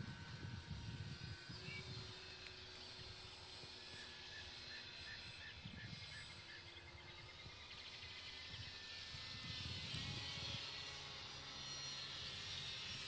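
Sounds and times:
wind buffeting microphone: 0:00.0 - 0:02.2, 0:05.2 - 0:06.4, 0:08.3 - 0:11.1
model airplane motors droning: 0:00.0 - 0:13.0.

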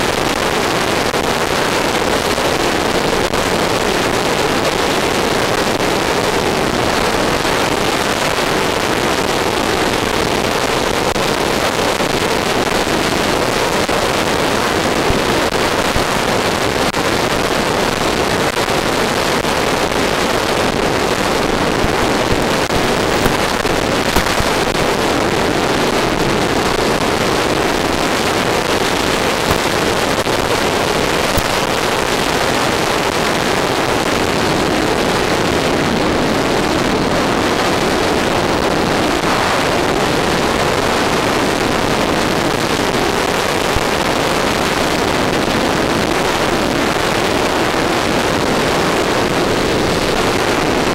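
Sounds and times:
steady rushing hiss: 0:00.0 - 0:35.2.

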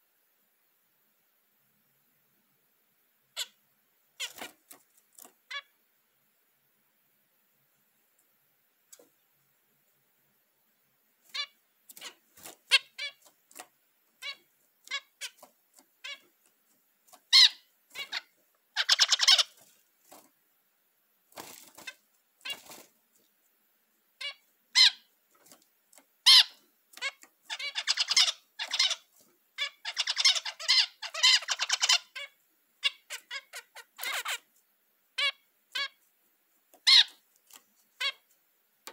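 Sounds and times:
finch buzzy song phrases: 0:17.3 - 0:19.7, 0:26.3 - 0:34.5.

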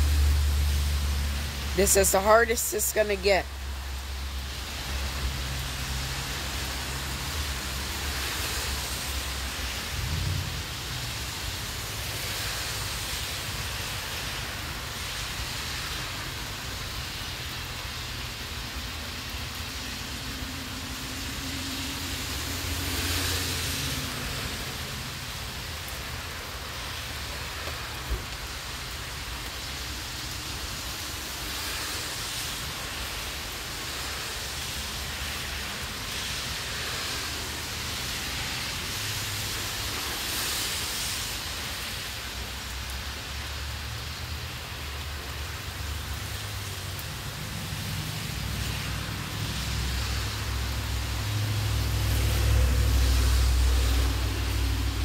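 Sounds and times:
rain on concrete and grass: 0:00.0 - 0:55.0.

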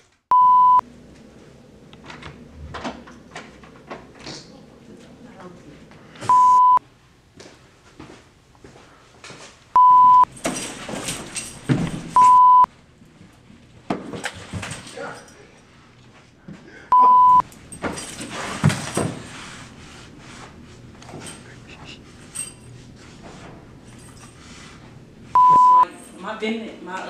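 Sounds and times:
censor bleeps: 0:00.3 - 0:00.8, 0:06.3 - 0:06.8, 0:09.8 - 0:10.3, 0:12.2 - 0:12.7, 0:16.9 - 0:17.4, 0:25.4 - 0:25.9.

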